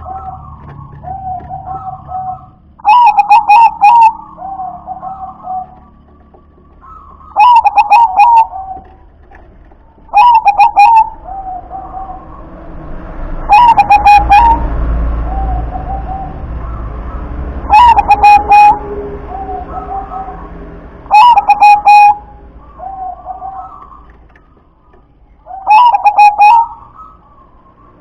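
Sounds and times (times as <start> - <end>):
dove cooing: 0.0 - 12.6, 13.4 - 28.0.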